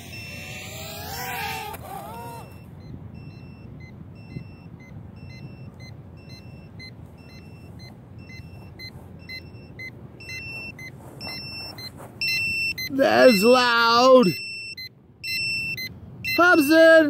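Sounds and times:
quadcopter motors winding down: 0.0 - 2.7
low outdoor rumble: 0.0 - 13.2
electronic beeper alarm: 0.0 - 16.6.

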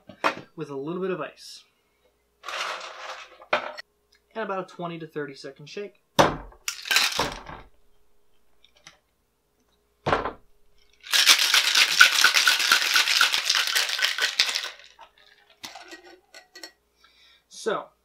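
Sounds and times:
ice rattling in cocktail shaker: 2.4 - 3.4, 6.7 - 7.3, 10.9 - 16.6.

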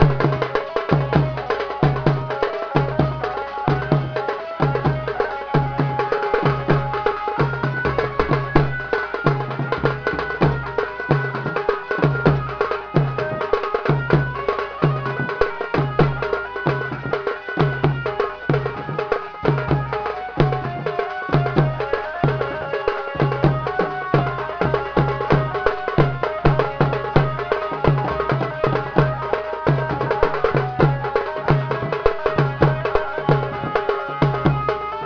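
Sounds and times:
folk dance music: 0.0 - 35.0
large drum beaten with stick: 0.0 - 35.0.

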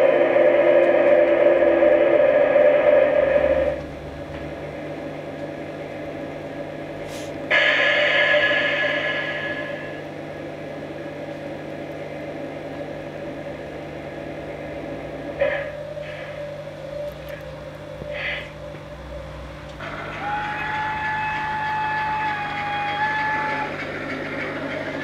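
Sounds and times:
steady higher tone: 0.0 - 5.1
model locomotive electrical hum: 0.0 - 25.0.

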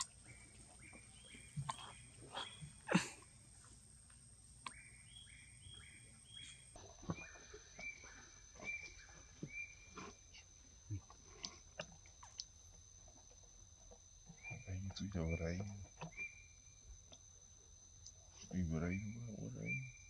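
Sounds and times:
high-pitched insect drone: 14.5 - 17.0.

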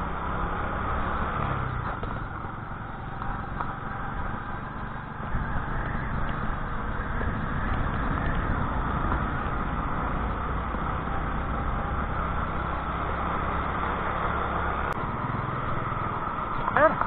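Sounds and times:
small scooter engine running: 0.0 - 17.0
wind noise on microphone: 4.0 - 12.5.

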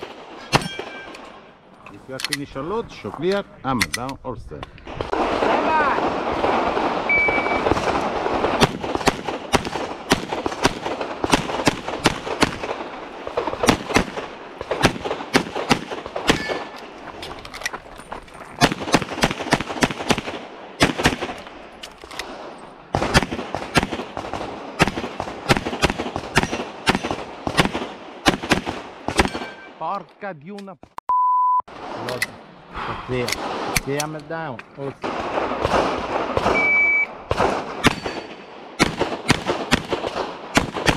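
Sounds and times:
pistol firing fast shots: 5.0 - 16.7, 18.6 - 21.4, 22.3 - 29.6, 35.1 - 40.9
shot timer beep: 7.1 - 7.6, 31.1 - 31.6, 36.6 - 37.1.

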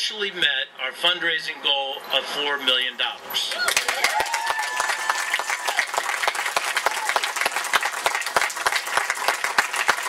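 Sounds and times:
crowd applauding: 3.5 - 10.0.

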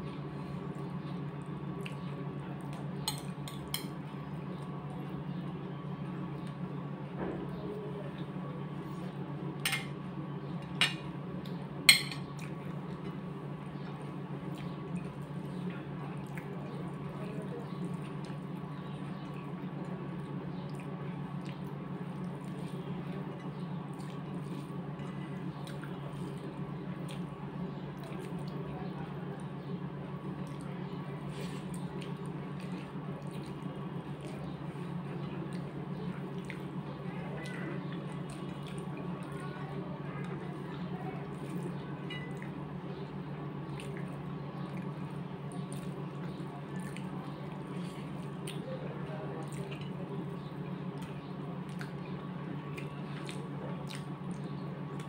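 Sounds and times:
steady low hum: 0.0 - 55.0
wet squishing of hands mixing rice: 0.0 - 55.0.

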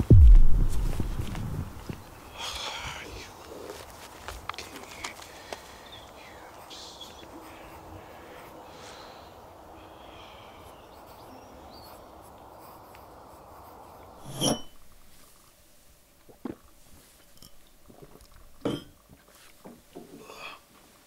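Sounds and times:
steady background hiss: 0.0 - 21.0
glass tumbler clinking: 17.3 - 17.7, 18.6 - 19.0.

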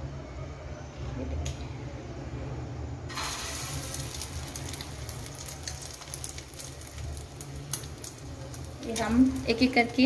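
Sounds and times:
meat sizzling in hot fat: 3.1 - 10.0.

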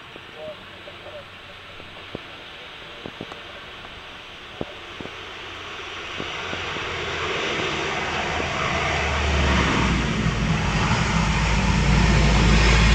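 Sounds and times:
turboprop engines roaring: 0.0 - 12.9.

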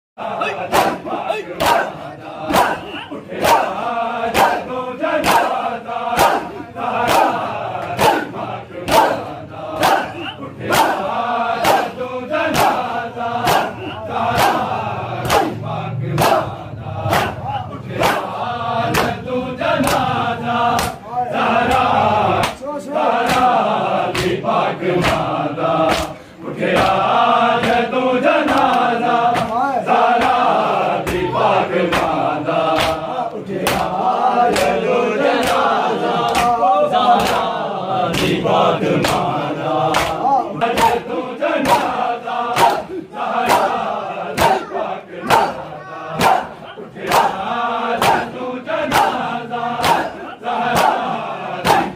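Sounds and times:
crowd of men chanting: 0.2 - 51.9
hands slapping chests: 1.6 - 9.2, 9.8 - 10.1, 10.7 - 15.6, 16.2 - 16.5, 17.1 - 19.2, 19.8 - 20.1, 20.7 - 21.0, 21.6 - 22.6, 23.2 - 24.4, 25.0 - 29.6, 31.9 - 34.8, 35.4 - 38.4, 39.0 - 41.0, 41.6 - 44.7, 45.3 - 45.6, 46.2 - 47.4, 48.0 - 48.3, 48.9 - 51.9.

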